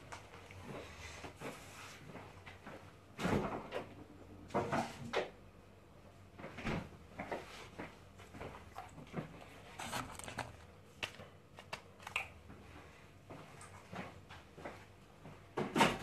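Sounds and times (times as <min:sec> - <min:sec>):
objects clunking and knocking: 0:02.2 - 0:05.4, 0:13.3 - 0:16.0.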